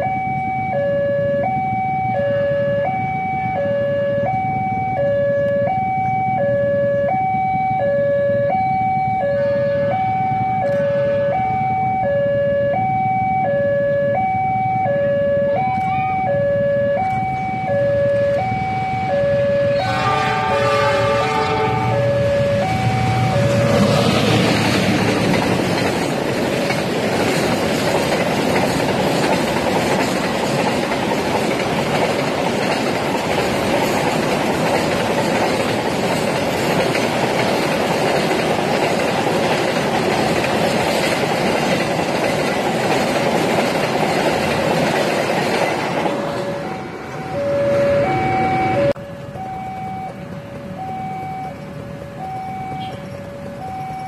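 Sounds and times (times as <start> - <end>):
two-tone warning alarm: 0.0 - 25.9, 44.2 - 54.0
freight train wheels clattering: 20.2 - 47.3.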